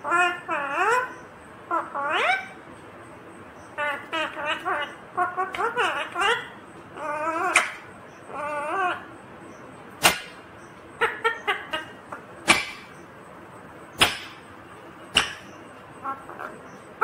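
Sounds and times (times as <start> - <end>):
parrot squawks: 0.0 - 2.6, 3.8 - 9.0, 10.0 - 10.4, 11.0 - 13.0
parrot warbling call: 0.0 - 2.6, 3.8 - 9.1, 11.0 - 13.0.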